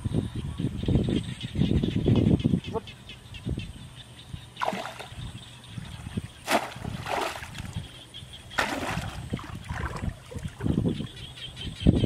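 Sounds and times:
water splashing and sloshing: 0:04.6 - 0:11.3.

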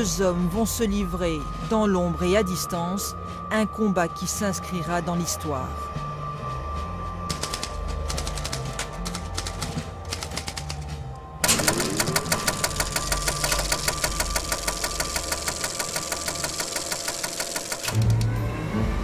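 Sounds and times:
rapid mechanical clatter: 0:11.4 - 0:18.3.

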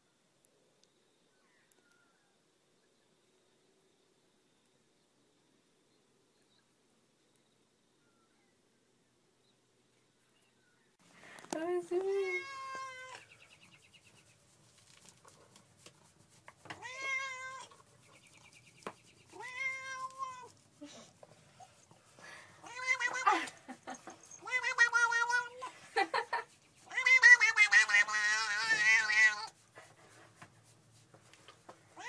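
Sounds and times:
cat meowing: 0:12.2 - 0:13.2, 0:16.8 - 0:17.8, 0:19.3 - 0:20.5, 0:22.6 - 0:23.4, 0:24.3 - 0:25.7, 0:26.9 - 0:29.6.

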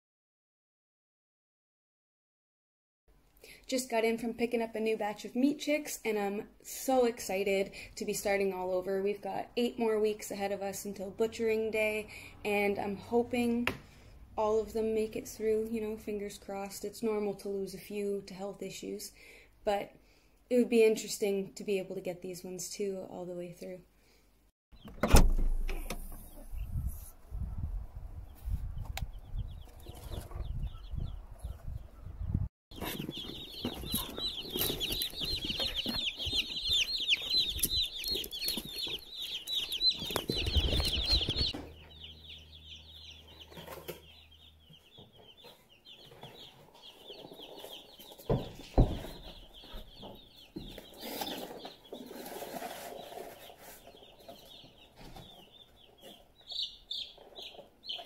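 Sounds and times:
chicks peeping: 0:26.3 - 0:58.0.

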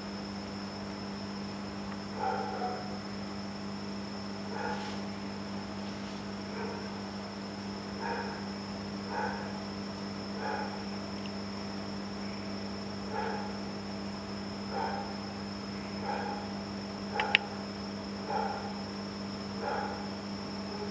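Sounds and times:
sharp click: 0:17.2 - 0:17.5.

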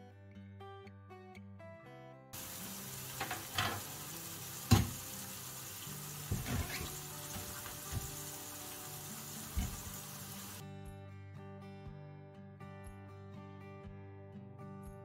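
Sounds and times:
meat sizzling in a pan: 0:02.4 - 0:10.6
cutting board knocking on counter: 0:04.7 - 0:05.0, 0:06.3 - 0:08.2.

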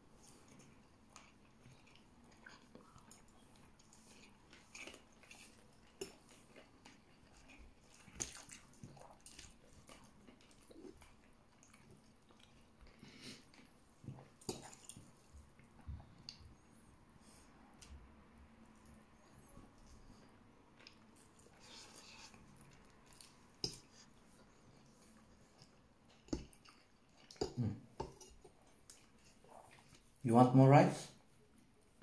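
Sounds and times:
chewing: 0:00.2 - 0:16.8, 0:18.6 - 0:30.2
fingers mixing food wet squishes: 0:00.5 - 0:16.6.

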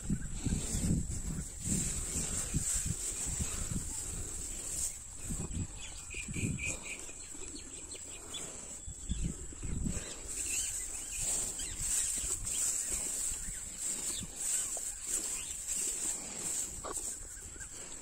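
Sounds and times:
cows munching straw: 0:00.0 - 0:18.0
bird chirping: 0:05.2 - 0:18.0.

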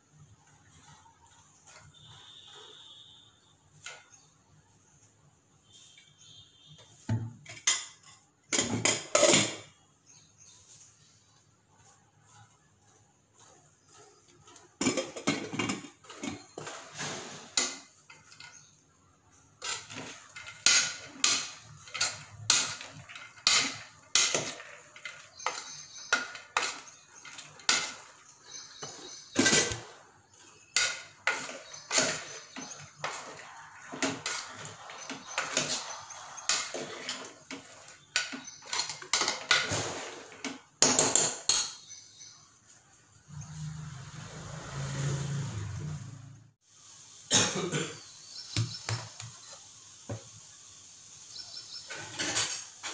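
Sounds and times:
metal spoon scraping a pan: 0:05.7 - 0:09.8, 0:13.4 - 0:18.8, 0:19.6 - 0:42.4, 0:51.7 - 0:52.9.

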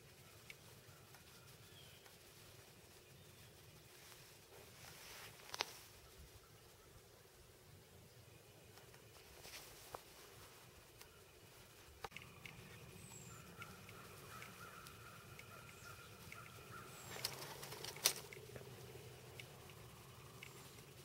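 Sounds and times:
faint steady whine: 0:00.0 - 0:21.0
low steady hiss: 0:00.0 - 0:21.0
faint high chirps: 0:05.9 - 0:21.0
sharp clicks: 0:12.0 - 0:21.0.

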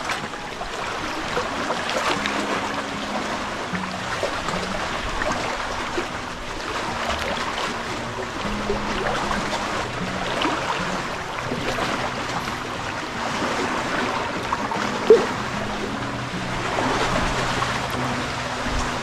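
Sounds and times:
sea water lapping and sloshing: 0:00.0 - 0:19.0
water plop: 0:03.7 - 0:16.0.

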